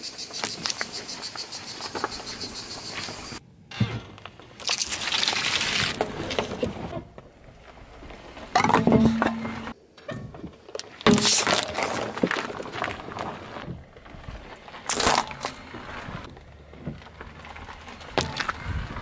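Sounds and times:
loud crunch: 0:02.9 - 0:09.8, 0:10.5 - 0:19.0
jelly squashing under tyre: 0:04.2 - 0:06.9, 0:10.4 - 0:19.0
metal tin crumpling: 0:04.6 - 0:06.6, 0:11.1 - 0:13.6.

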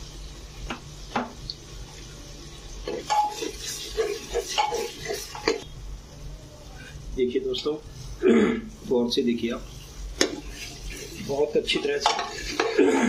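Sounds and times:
spoon scraping metal pot: 0:02.9 - 0:05.6.

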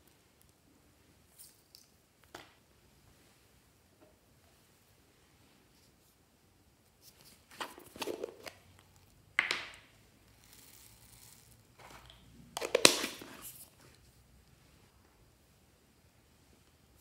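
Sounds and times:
plastic jar cap twisting: 0:07.5 - 0:08.6, 0:10.4 - 0:13.7
foam beads rattling: 0:10.3 - 0:13.7.

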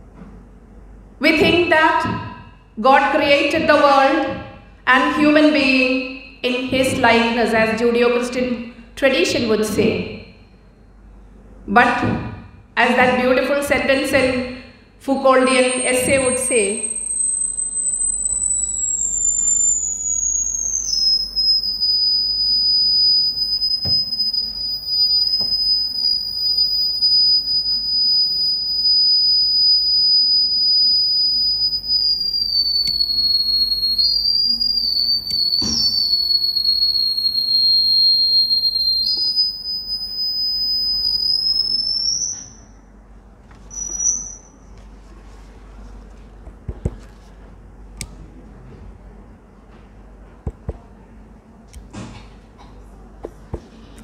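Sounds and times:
faint hum: 0:00.0 - 0:54.0
microphone feedback whistle: 0:01.3 - 0:02.6, 0:03.5 - 0:08.3, 0:13.8 - 0:42.9, 0:43.6 - 0:44.8.

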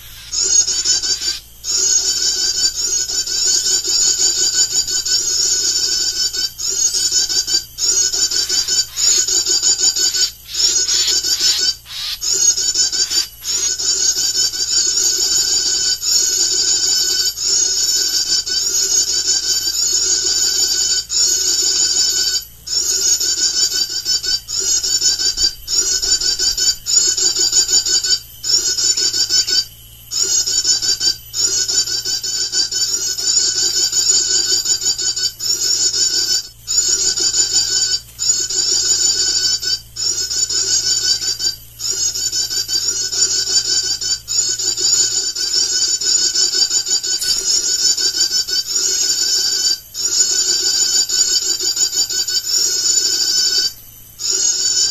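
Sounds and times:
bird call through loudspeaker: 0:00.0 - 0:03.4, 0:07.8 - 0:14.2.

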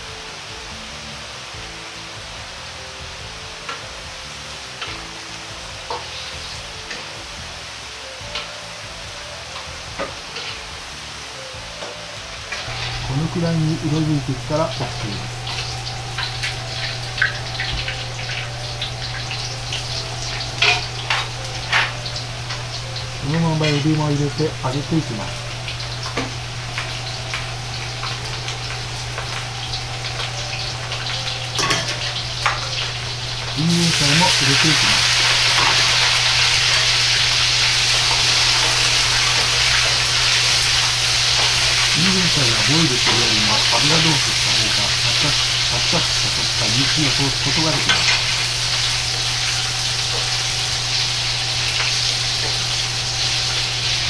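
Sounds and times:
food sizzling in hot oil: 0:00.0 - 0:54.0
steady low hum: 0:12.6 - 0:54.0.

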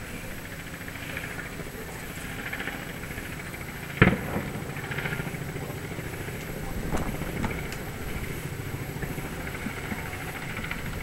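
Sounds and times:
background hum: 0:00.0 - 0:11.0
loud firework bang: 0:04.0 - 0:04.8.

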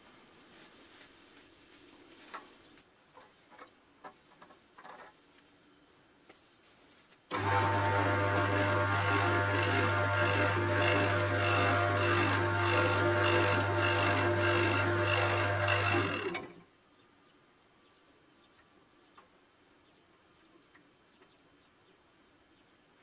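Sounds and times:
cloth rubbing spinning wood: 0:06.4 - 0:16.3
wood lathe motor hum: 0:07.3 - 0:16.5.

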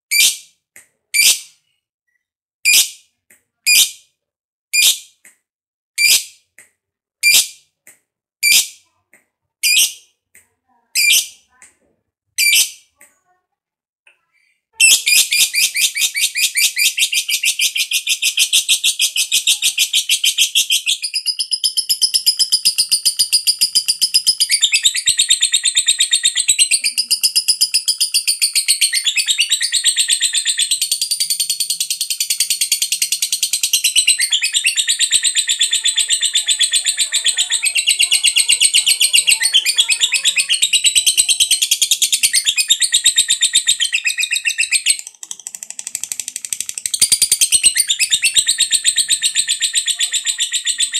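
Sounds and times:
lovebird chattering trill: 0:14.8 - 0:50.9.

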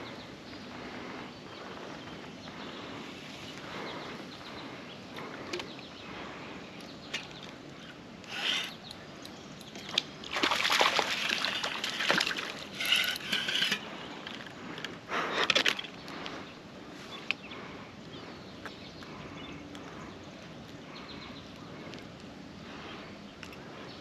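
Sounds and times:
water splashing and sloshing: 0:09.6 - 0:14.8.

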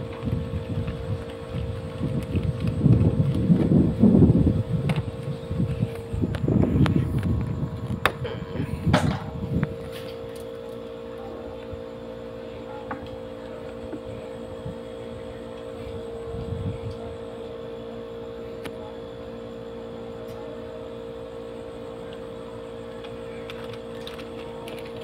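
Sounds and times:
low rumble: 0:00.0 - 0:10.3
machine humming: 0:00.0 - 0:25.0.

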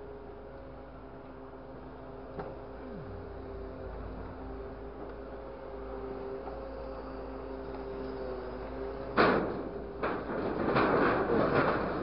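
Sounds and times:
hydraulic hum: 0:01.7 - 0:10.3
scrap metal rattling and crunching: 0:09.2 - 0:12.0.

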